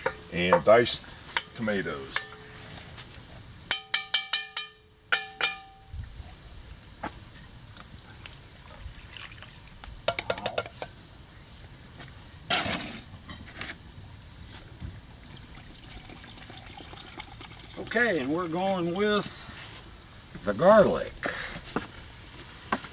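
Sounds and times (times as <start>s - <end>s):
metal clinks and taps: 3.7s - 5.9s
liquid splashing into pot: 8.2s - 10.4s.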